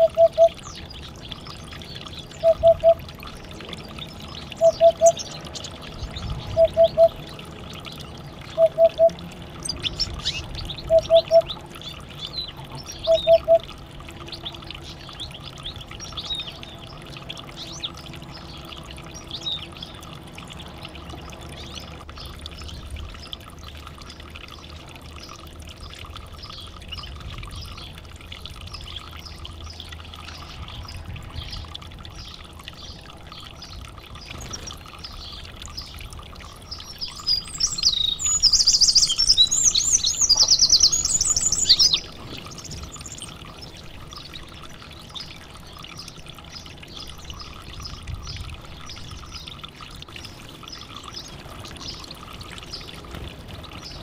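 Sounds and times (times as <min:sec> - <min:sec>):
canaries chirping: 0:37.6 - 0:42.0.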